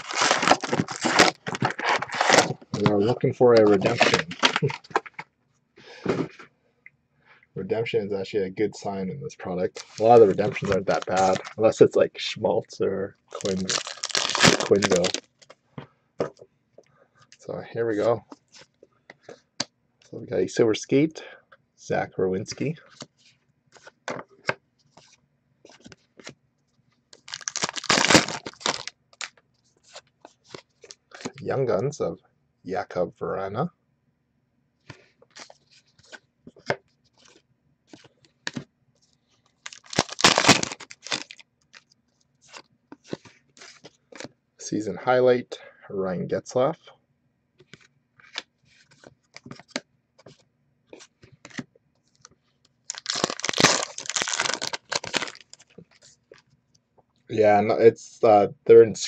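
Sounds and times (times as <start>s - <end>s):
foil pack tearing open: 0.0s - 5.1s, 9.8s - 11.6s, 13.4s - 15.3s, 27.2s - 29.3s, 39.6s - 41.4s, 52.9s - 55.7s.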